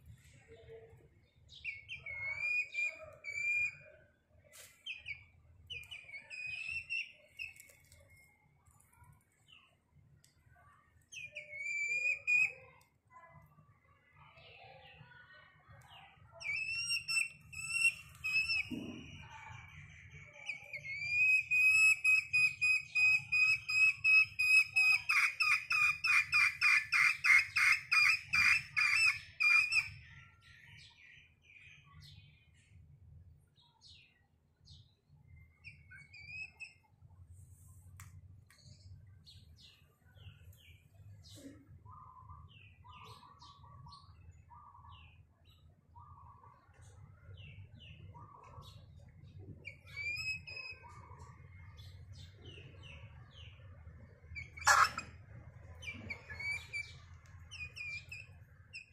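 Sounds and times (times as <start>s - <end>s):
chick calling with whistle-like notes: 1.6s - 3.8s, 4.9s - 8.0s, 11.2s - 12.6s, 16.4s - 18.7s, 20.5s - 30.0s, 35.7s - 36.7s, 49.7s - 50.9s, 54.4s - 55.2s, 55.8s - 58.9s
faint chirps: 54.3s - 58.9s.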